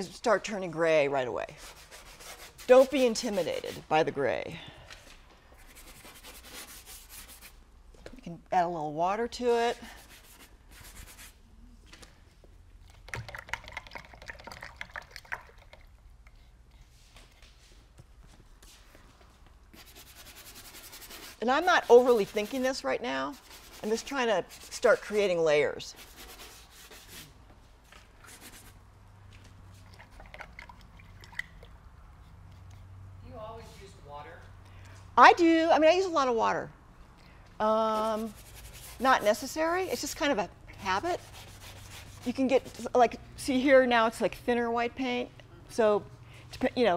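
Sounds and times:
paintbrush scrubbing on paper: 1.5s - 4.0s, 5.6s - 7.6s, 9.6s - 11.4s, 19.7s - 27.4s, 28.2s - 28.8s, 37.7s - 43.0s
paintbrush clicking and splashing in water: 12.9s - 16.4s, 29.8s - 31.8s
brushing swish: 19.8s - 25.3s, 28.2s - 28.8s, 37.8s - 40.0s, 40.9s - 43.0s.

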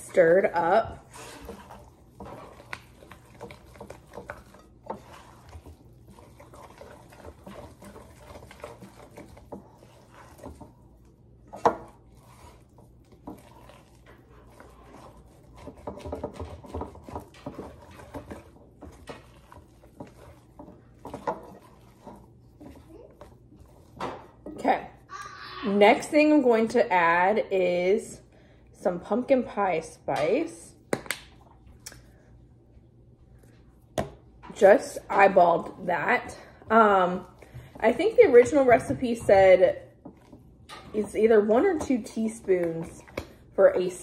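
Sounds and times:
spoon stirring wet mixture: 0.0s - 44.0s
spoon scraping glass bowl: 0.2s - 10.8s.

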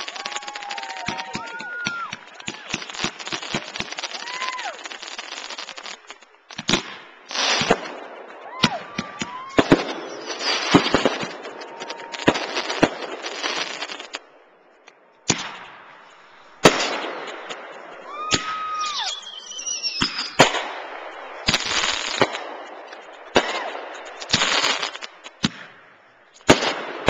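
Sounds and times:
fireworks bangs: 0.0s - 27.0s
fireworks crackling and hissing: 0.0s - 27.0s.

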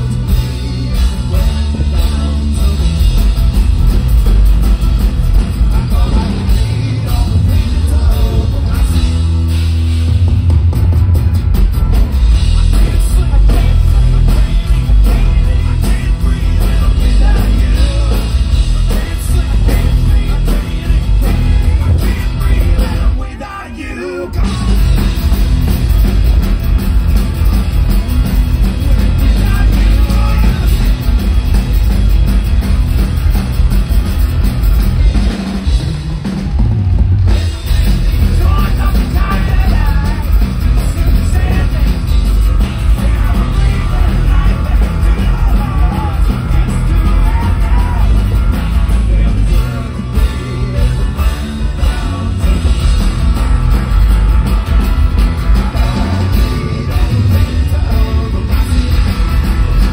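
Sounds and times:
person singing: 0.0s - 3.4s, 5.6s - 9.2s, 12.5s - 25.4s, 28.8s - 31.2s, 36.3s - 53.4s, 55.4s - 59.9s
live rock band playing: 0.0s - 59.9s.

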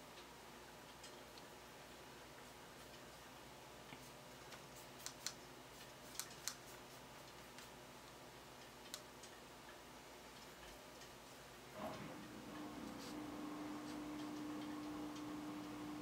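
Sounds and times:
small irregular clicks: 0.0s - 11.7s.

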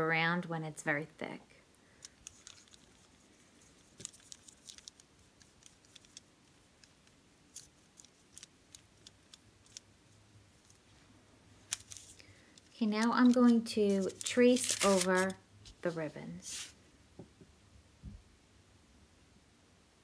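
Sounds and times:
brush clicking on foil: 2.0s - 10.0s, 11.7s - 15.4s.

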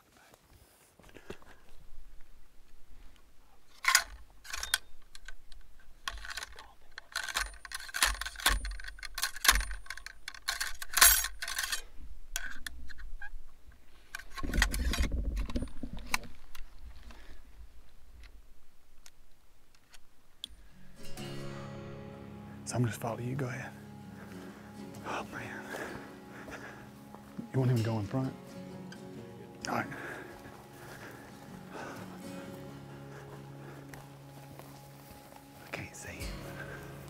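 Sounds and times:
rustling of clothing and grass: 0.0s - 37.0s
metallic clicks and clinks: 3.8s - 12.7s.

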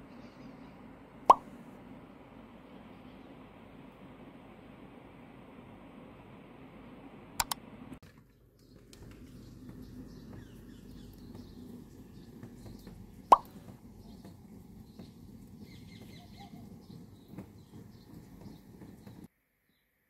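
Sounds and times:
light water drips: 8.5s - 19.3s
rain: 8.9s - 19.3s
faint bird chirps: 14.9s - 18.7s.

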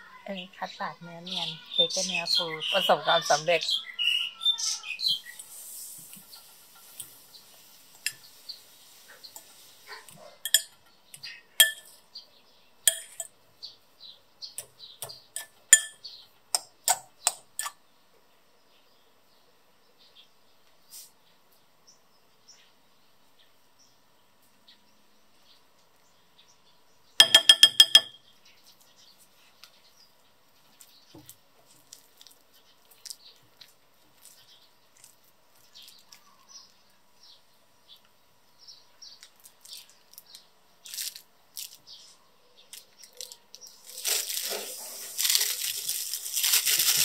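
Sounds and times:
plastic piping bag crinkling: 30.7s - 36.4s, 39.2s - 42.1s, 42.7s - 47.0s.

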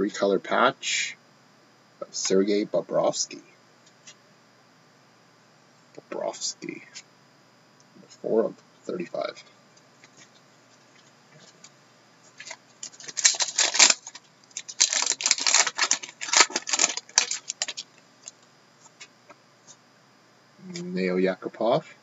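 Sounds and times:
wrapper crinkling and rustling: 12.4s - 18.4s.

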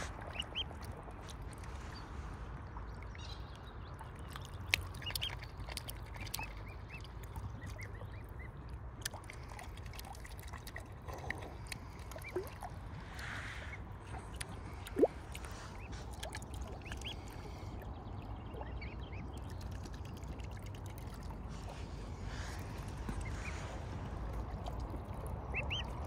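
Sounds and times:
cygnets peeping: 0.0s - 0.9s, 3.9s - 8.5s, 13.6s - 20.0s, 25.5s - 26.0s
steady low rumble: 5.4s - 26.0s.

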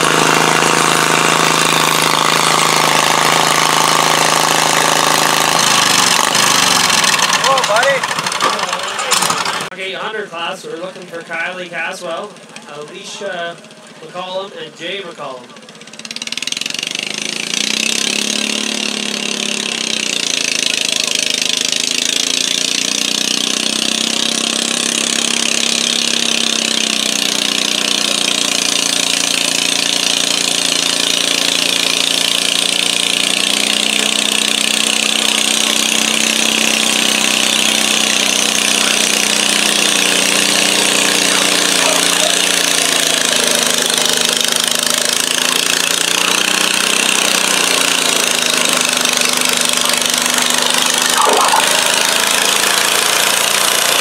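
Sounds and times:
tractor engine under load: 0.0s - 9.8s, 15.4s - 51.1s
brief sharp sound: 51.0s - 52.2s.

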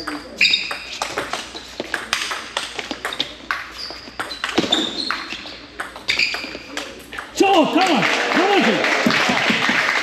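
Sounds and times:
shoe squeaks: 0.0s - 7.1s.

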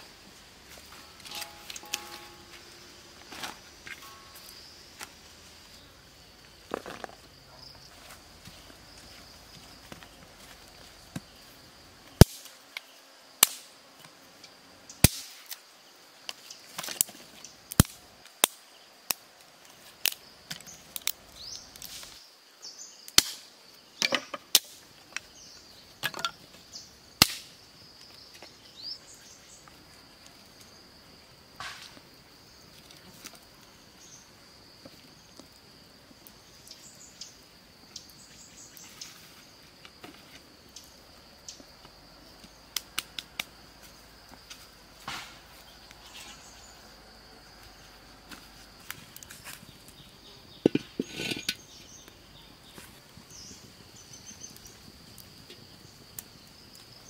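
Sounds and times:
high insect drone: 0.0s - 19.0s, 19.8s - 57.0s
dry sticks snapping: 1.2s - 2.5s, 12.2s - 13.7s, 16.3s - 19.2s, 27.2s - 27.5s.

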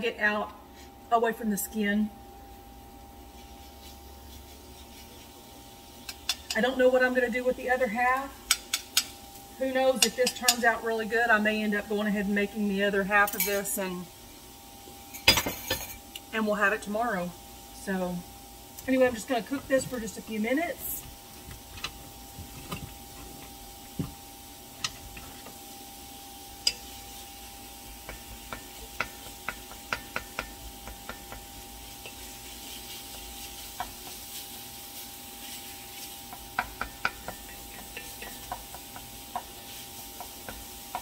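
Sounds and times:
faint sizzle: 0.0s - 41.0s
wooden spoon scraping a pan: 3.2s - 6.7s, 28.1s - 41.0s.

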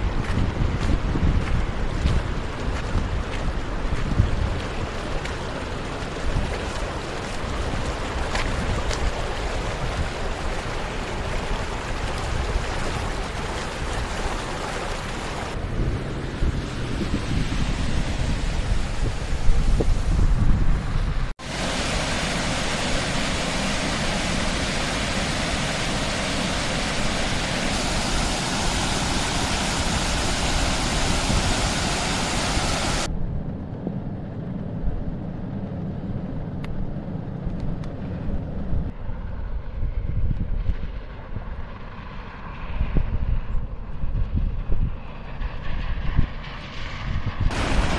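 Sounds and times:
low water rumble: 0.0s - 47.9s
floodwater rushing: 1.6s - 33.1s, 47.5s - 47.9s.

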